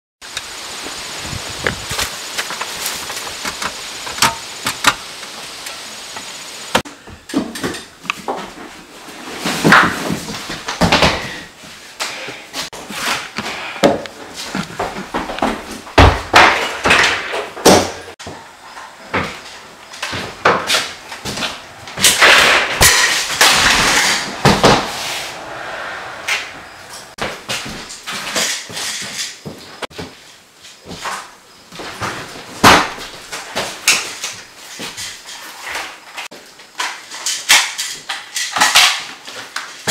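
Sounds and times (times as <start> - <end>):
steady outdoor hiss: 0.2 - 39.9
crashing sounds: 19.1 - 29.2
loud bangs and knocks: 20.1 - 27.9.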